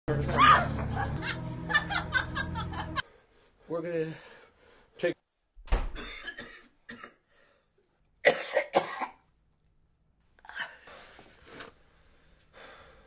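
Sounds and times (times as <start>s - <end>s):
man coughing harshly: 6.0s - 7.2s, 8.2s - 9.2s.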